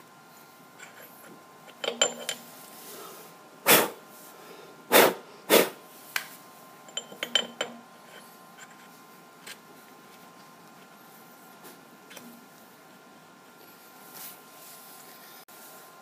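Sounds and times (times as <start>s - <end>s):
light metal clinks: 1.7s - 2.4s, 6.9s - 7.9s.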